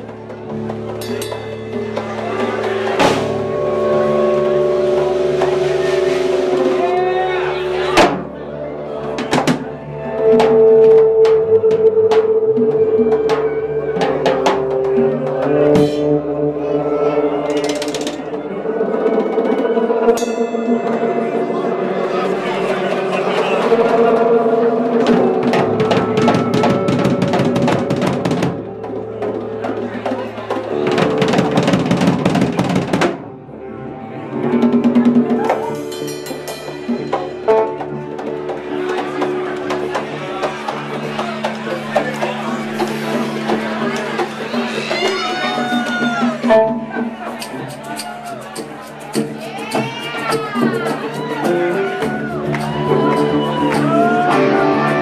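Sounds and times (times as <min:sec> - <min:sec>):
drum kit with crashing cymbals: 0:00.0 - 0:08.4, 0:15.6 - 0:16.2
drum kit played with sticks: 0:00.0 - 0:33.4, 0:34.3 - 0:55.0
held low instrument notes: 0:00.0 - 0:55.0.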